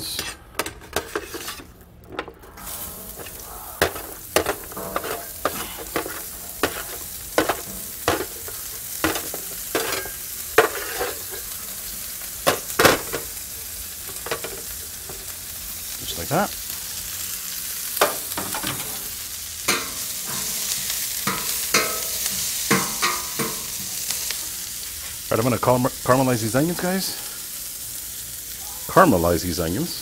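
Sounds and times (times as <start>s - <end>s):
metal spatula scraping and clacking: 0.0s - 1.7s, 2.6s - 11.5s, 19.7s - 23.8s
onions sizzling on a griddle: 2.4s - 30.0s.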